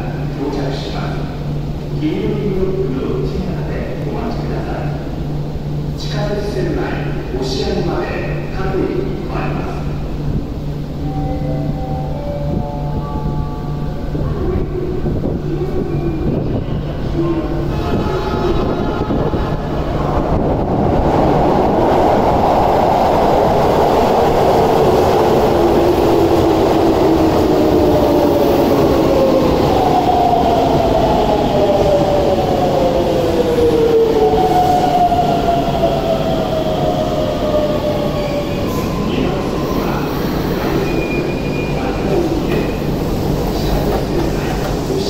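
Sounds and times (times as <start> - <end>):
train wheels rumbling on rail: 12.4 - 45.0.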